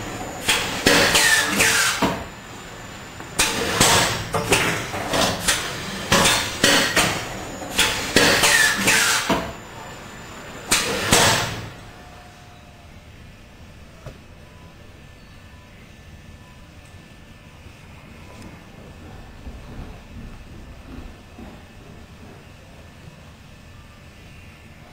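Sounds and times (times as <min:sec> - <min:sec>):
pneumatic cutting head clacking: 0:03.4 - 0:09.5, 0:10.7 - 0:11.7.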